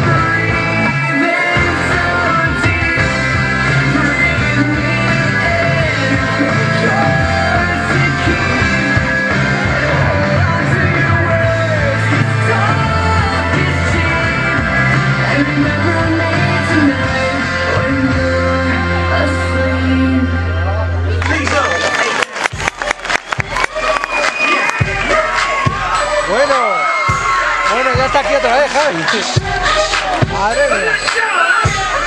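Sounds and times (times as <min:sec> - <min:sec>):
rock song over loudspeakers: 0:00.0 - 0:32.0.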